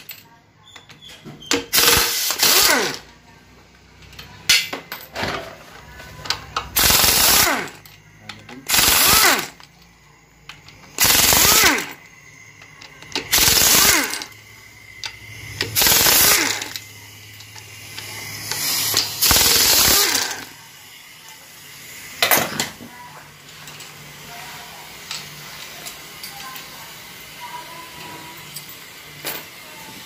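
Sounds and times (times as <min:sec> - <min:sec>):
impact wrench hammering: 0:01.5 - 0:03.0, 0:06.6 - 0:09.7, 0:10.5 - 0:12.0, 0:12.8 - 0:14.4, 0:15.0 - 0:16.8, 0:17.9 - 0:20.5.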